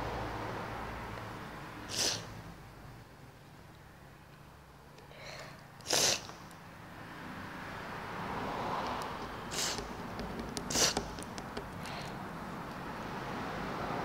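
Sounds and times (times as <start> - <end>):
sharp breath bursts: 1.8 - 2.4, 5.1 - 6.4, 9.5 - 10.0, 10.7 - 11.2, 11.8 - 12.3.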